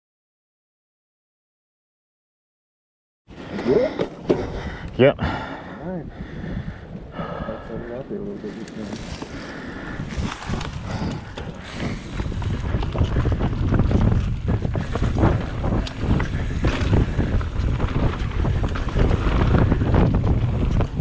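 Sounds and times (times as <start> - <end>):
bike knocking and rattling: 3.4 - 4.8, 8.5 - 21.0
wind buffeting microphone: 3.4 - 21.0
bike tyres on dirt and leaves: 8.4 - 21.0.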